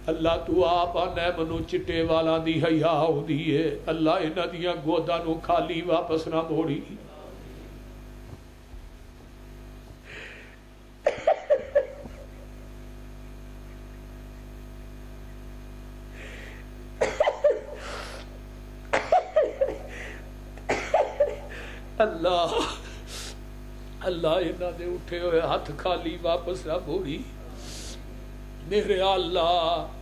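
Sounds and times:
steady hum: 0.0s - 30.0s
man sobbing: 10.1s - 12.6s, 16.2s - 23.4s.

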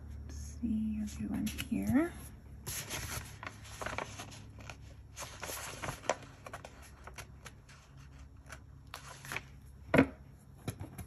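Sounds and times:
paper rustling: 1.4s - 9.6s.

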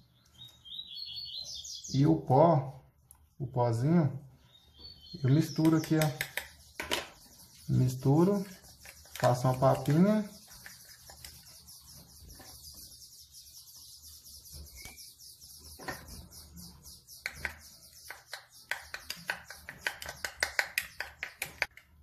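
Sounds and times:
bird chirp: 0.0s - 22.0s
spoon scraping plastic cup: 6.3s - 12.7s.

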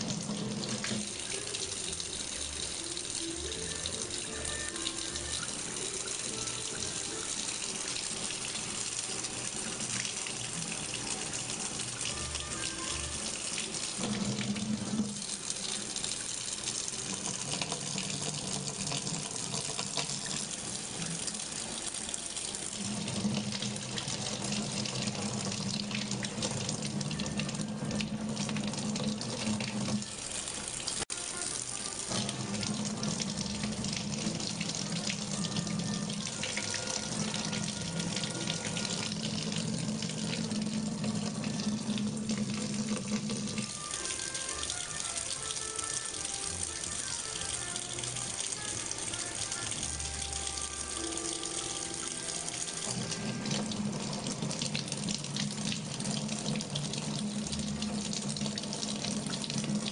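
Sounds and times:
faucet water splashing into sink: 0.0s - 59.9s.

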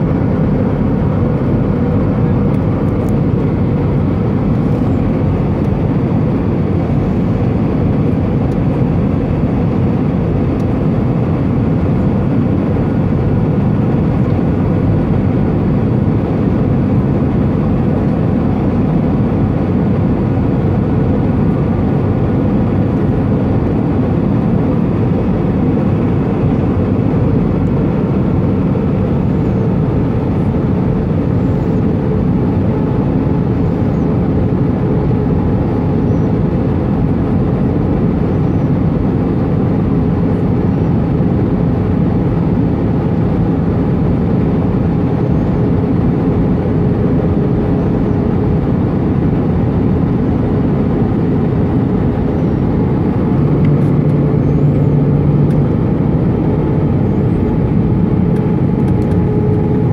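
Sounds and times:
airplane cabin engine rush: 0.0s - 59.9s.

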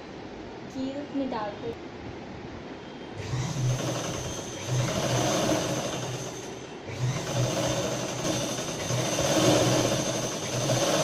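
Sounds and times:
sewing machine running: 3.2s - 11.0s.

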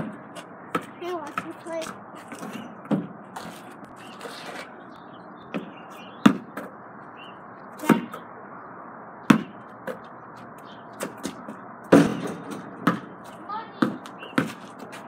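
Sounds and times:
basketball bouncing: 0.0s - 3.2s, 5.5s - 6.7s, 9.2s - 10.0s, 11.0s - 13.2s, 13.8s - 14.7s.

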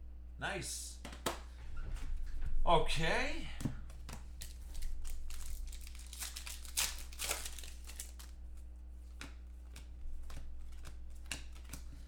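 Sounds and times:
steady low hum: 0.0s - 12.0s
foil wrapper crinkling and tearing: 4.3s - 8.4s
cards clicking: 9.1s - 12.0s.

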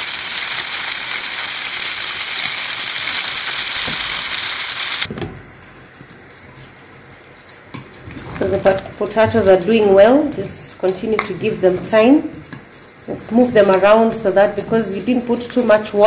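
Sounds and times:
pork sizzling in a frying pan: 0.0s - 5.6s
pot of potatoes steaming: 0.0s - 12.5s.

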